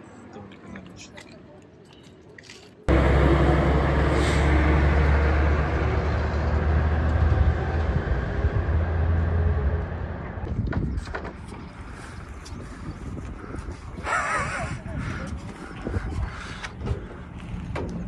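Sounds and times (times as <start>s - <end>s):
tyre and road noise: 0.0s - 18.0s
truck engine hum: 2.9s - 10.5s.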